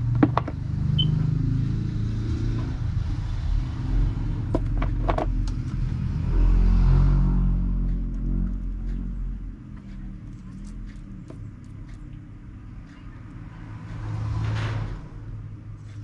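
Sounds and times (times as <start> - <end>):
vehicle engine rumbling: 0.0 - 16.0.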